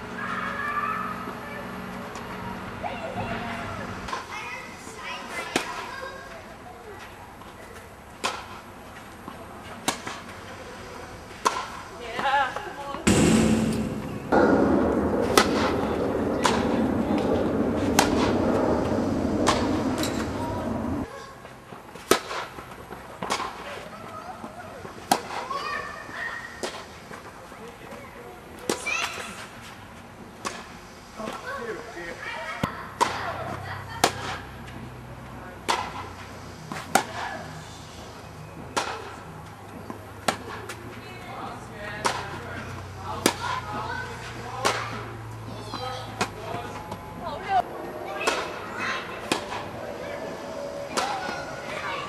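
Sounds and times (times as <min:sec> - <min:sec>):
steady background noise: 0:00.0 - 0:52.0
steady low hum: 0:13.1 - 0:21.1.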